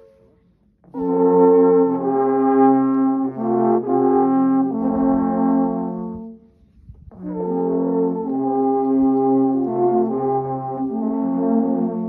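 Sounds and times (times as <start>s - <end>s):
alphorns playing long notes: 7.2s - 12.0s.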